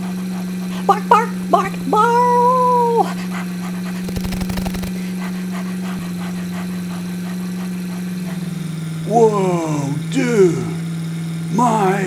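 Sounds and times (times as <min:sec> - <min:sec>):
dog-like howl: 0:00.0 - 0:04.0
car engine idling: 0:00.0 - 0:12.0
short rattling burst: 0:03.9 - 0:05.5.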